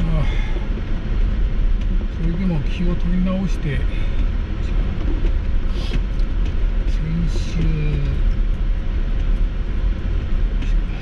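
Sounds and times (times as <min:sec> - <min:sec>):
car road and engine rumble: 0:00.0 - 0:11.0.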